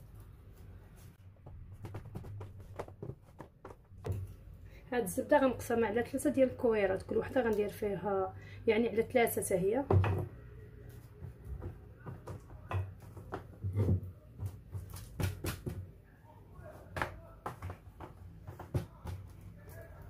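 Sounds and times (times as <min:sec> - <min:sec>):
light taps and knocks: 0:01.4 - 0:04.4.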